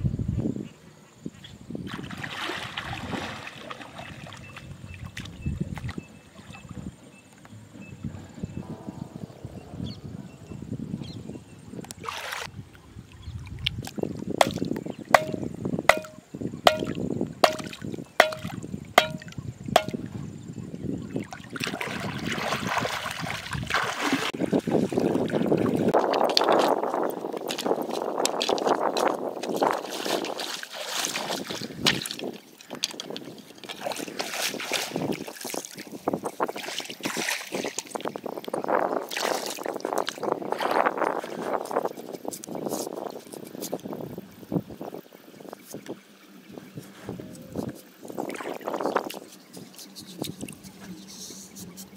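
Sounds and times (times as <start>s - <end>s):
water sloshing: 1.9s - 8.0s, 11.9s - 20.3s, 21.2s - 38.1s, 47.6s - 51.9s
chopper hammering wooden stake: 15.2s - 20.0s.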